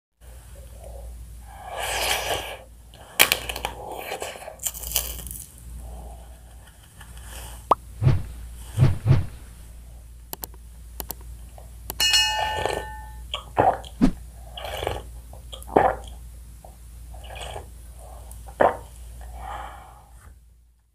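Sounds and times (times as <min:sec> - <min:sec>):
crunchy bites: 0:04.6 - 0:05.6.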